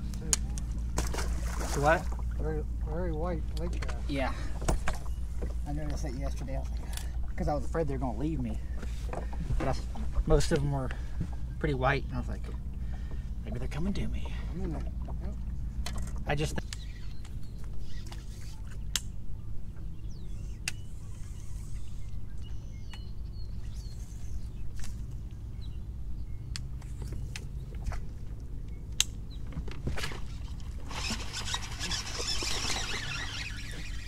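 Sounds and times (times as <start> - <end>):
steady low rumble: 0.0 - 17.8
faint bird chirps: 16.6 - 24.8.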